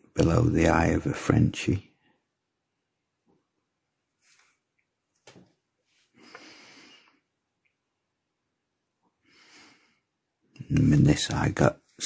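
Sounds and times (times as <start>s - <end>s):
faint breaths: 5.9s - 7.3s, 9.1s - 10.3s.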